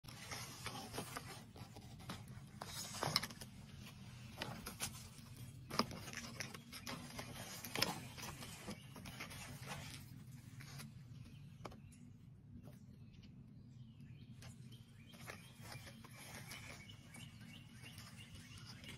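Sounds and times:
rustling in dry leaves: 15.1 - 18.9.

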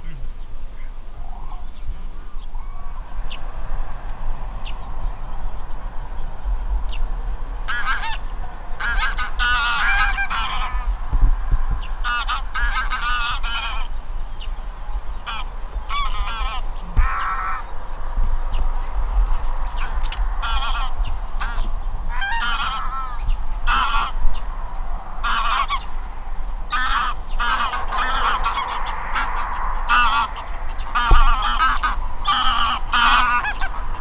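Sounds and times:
geese honking: 0.0 - 11.2, 11.8 - 34.0.

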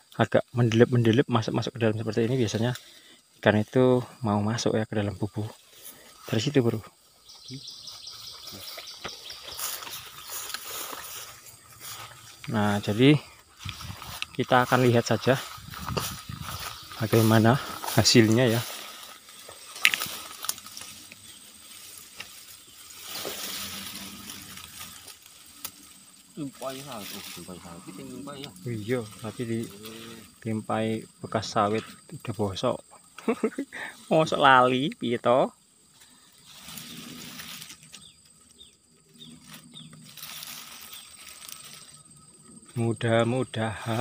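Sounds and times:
high insect buzz: 0.0 - 44.0
undergrowth rustling: 0.0 - 44.0
twigs snapping: 8.4 - 12.6, 13.4 - 14.4, 15.4 - 27.5, 36.0 - 38.4, 39.3 - 42.0.

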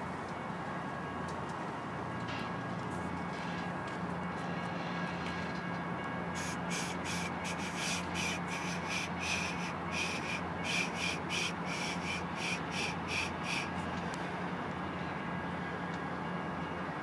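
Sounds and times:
diesel locomotive humming: 0.0 - 17.0
rhythmic short scratchy sounds: 6.4 - 13.8.

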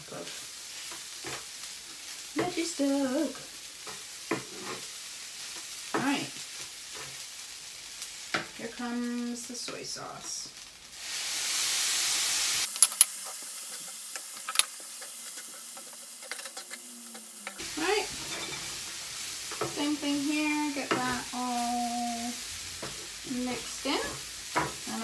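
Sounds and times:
mince sizzling in a skillet: 0.0 - 25.0
wooden spatula scraping pan: 3.9 - 4.9, 14.8 - 20.0.

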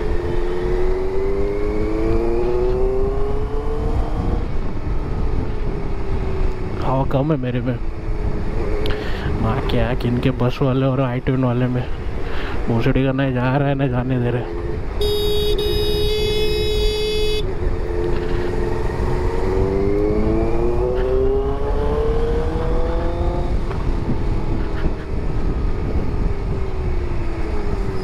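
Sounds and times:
motorcycle engine accelerating: 0.0 - 4.6, 15.1 - 28.0
wind and road rush: 0.0 - 28.0
vehicle horn: 15.0 - 17.5.

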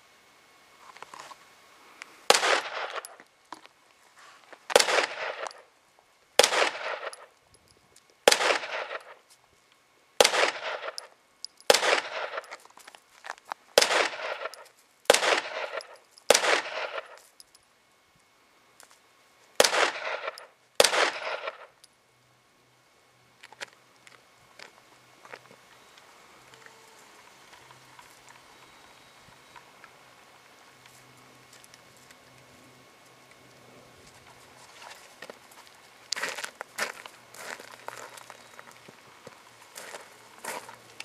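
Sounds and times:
pistol shots with echo: 2.3 - 3.1, 4.8 - 5.6, 6.4 - 7.3, 8.3 - 9.2, 10.2 - 11.1, 11.7 - 12.5, 13.8 - 17.2, 19.6 - 21.7.

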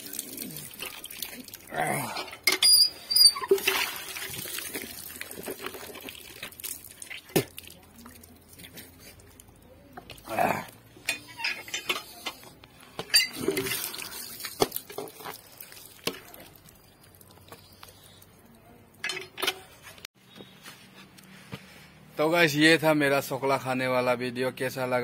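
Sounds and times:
dishware clattering: 13.0 - 13.7.

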